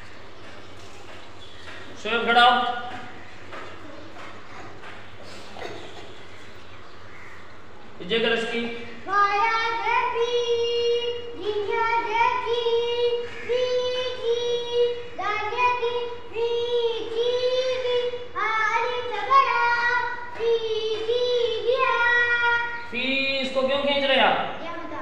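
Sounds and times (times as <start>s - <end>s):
boy chanting syllables: 8.2s - 25.0s.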